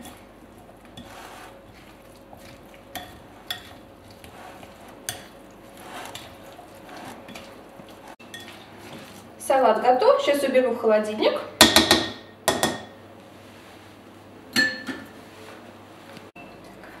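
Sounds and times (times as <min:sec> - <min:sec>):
soft utensil scrapes in salad: 0:00.9 - 0:09.3.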